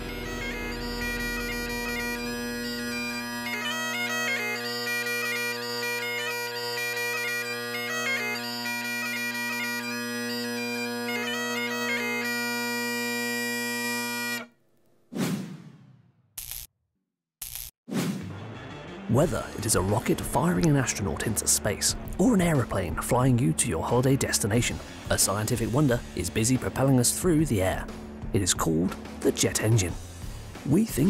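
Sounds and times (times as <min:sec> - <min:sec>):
bagpipe playing: 0:00.0 - 0:14.6, 0:19.1 - 0:27.7.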